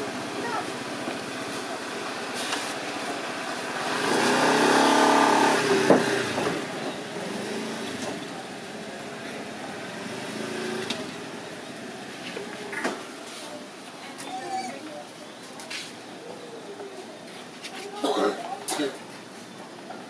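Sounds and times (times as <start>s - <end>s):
vehicle engine passing by: 2.1s - 12.2s.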